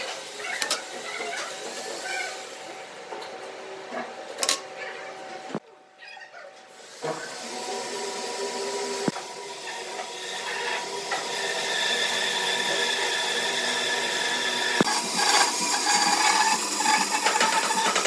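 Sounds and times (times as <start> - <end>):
workshop machine hum: 0.0 - 18.0
band saw cutting wood: 7.3 - 18.0.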